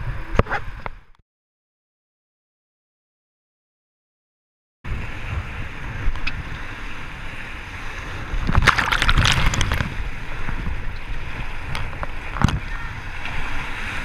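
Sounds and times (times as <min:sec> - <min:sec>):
wave splashing: 0:04.9 - 0:14.0
wind buffeting microphone: 0:04.9 - 0:14.0.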